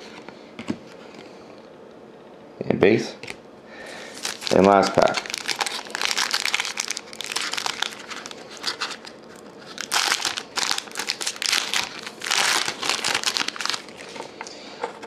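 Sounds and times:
foil wrapper tearing and crinkling: 4.1 - 14.2.

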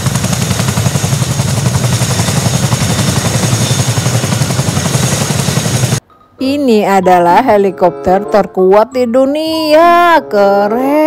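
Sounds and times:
helicopter rotor blade chop: 0.0 - 6.0
turbine whine: 0.0 - 6.0.

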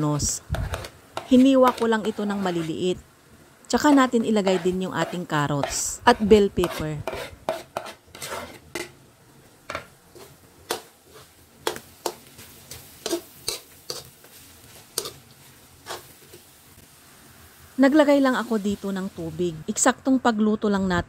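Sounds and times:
spatula scraping metal wok: 0.2 - 3.0, 3.7 - 9.0, 9.7 - 16.6.

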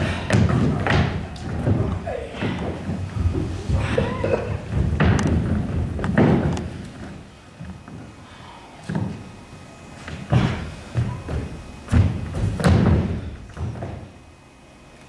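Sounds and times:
heavy thuds on stage floor: 10.1 - 14.1.

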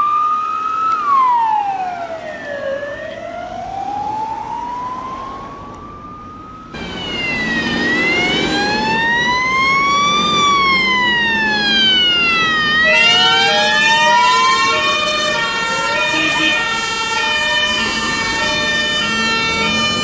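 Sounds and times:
fire engine siren wailing: 0.0 - 20.0
second siren: 0.0 - 20.0
truck engine: 6.7 - 20.0.

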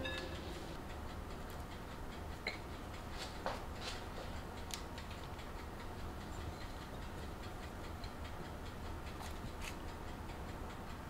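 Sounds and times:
low steady hum: 0.0 - 3.6.

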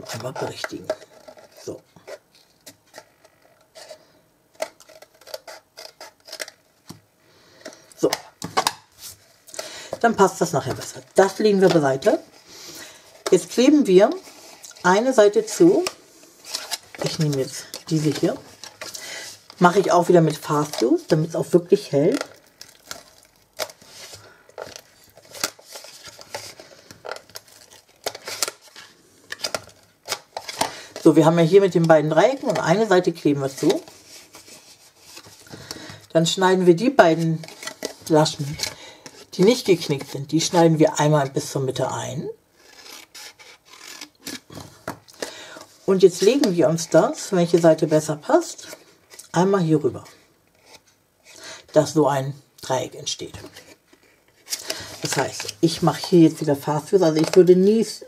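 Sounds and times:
stiff paper clicks and rustles: 15.7 - 36.1.

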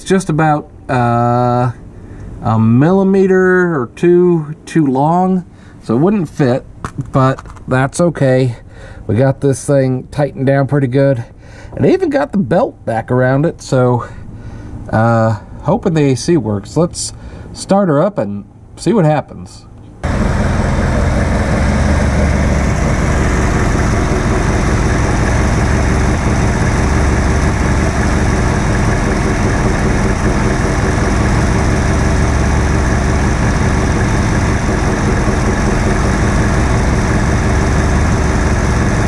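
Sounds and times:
car engine idling: 20.0 - 39.0.

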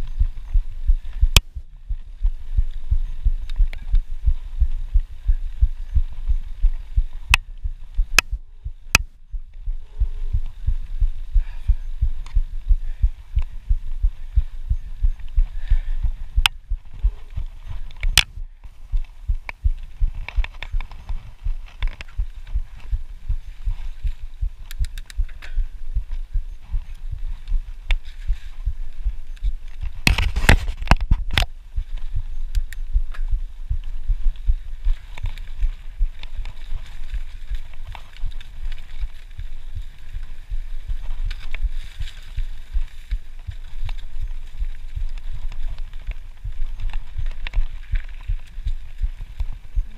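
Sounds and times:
low thumps from bumps: 0.0 - 49.9
wind rumble on microphone: 0.0 - 49.9
bike clicks and rattles: 19.5 - 25.8.

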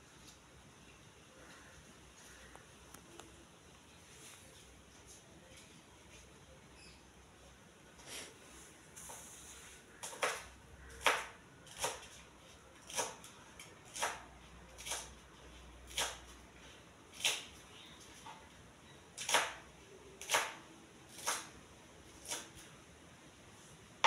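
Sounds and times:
knife chopping on cutting board: 11.0 - 12.0.

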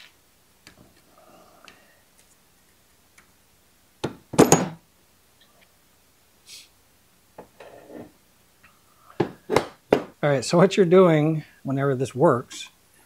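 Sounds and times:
metal parts knocking on workbench: 4.3 - 4.8
faint handling scrapes: 7.6 - 8.2.

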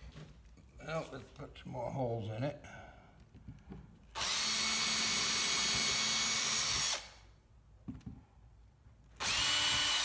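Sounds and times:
cordless drill boring into wood: 4.2 - 7.2, 9.2 - 10.0.

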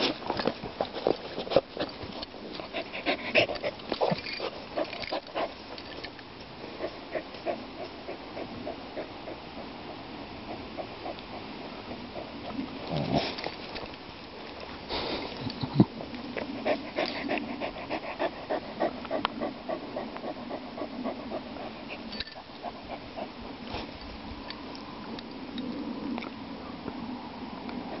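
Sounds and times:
dog panting: 0.9 - 5.7, 6.6 - 13.6, 16.3 - 24.0, 27.7 - 28.0.

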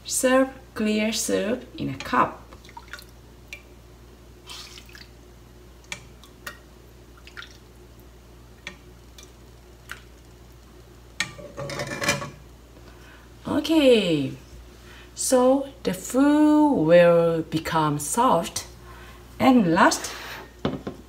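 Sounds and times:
soup dripping and clicks: 5.8 - 11.4.

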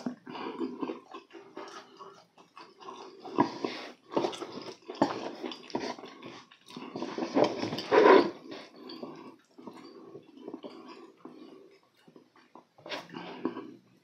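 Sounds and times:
wet chewing and lip-smacking: 0.0 - 7.9.

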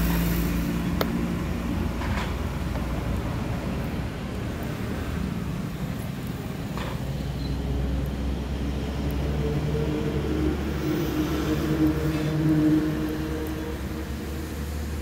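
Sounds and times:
engine running: 0.0 - 15.0.

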